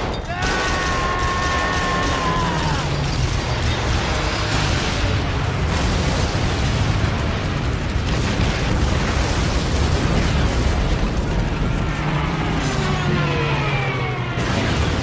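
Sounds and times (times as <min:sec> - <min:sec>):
bombs exploding: 0:00.0 - 0:11.7, 0:14.4 - 0:15.0
man screaming: 0:00.3 - 0:02.9.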